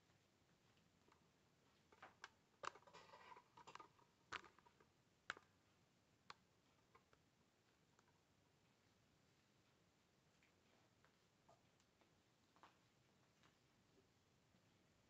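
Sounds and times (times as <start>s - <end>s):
sharp small clicks and knocks: 1.8s - 5.6s.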